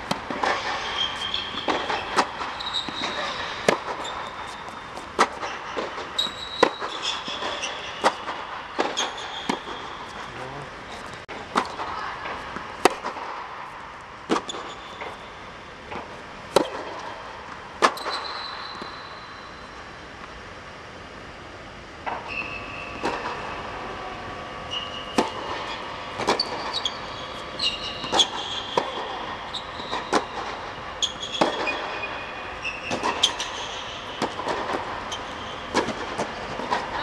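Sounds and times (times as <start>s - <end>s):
shoes squeaking on court: 0.4s - 11.2s, 14.4s - 15.2s, 17.8s - 19.0s, 24.7s - 30.3s, 31.0s - 34.4s, 35.1s - 36.5s.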